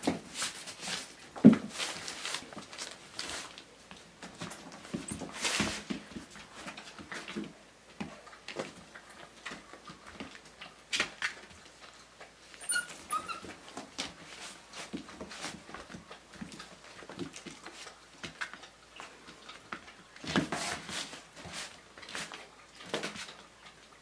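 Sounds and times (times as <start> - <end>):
puppy whimpers: 12.6 - 13.6.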